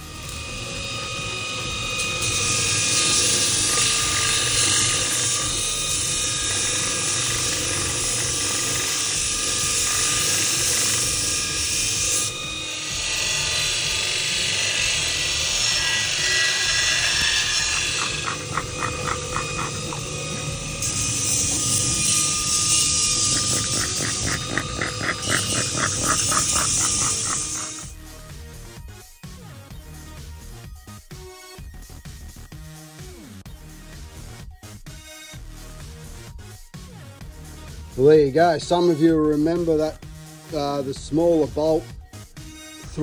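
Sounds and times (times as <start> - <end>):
belt grinder grinding metal: 0.0 - 28.3.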